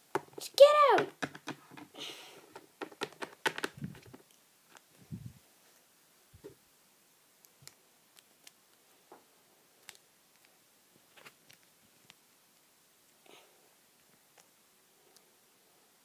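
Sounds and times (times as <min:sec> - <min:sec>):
plastic toys clicking and tapping: 0:00.1 - 0:01.9, 0:02.5 - 0:04.3.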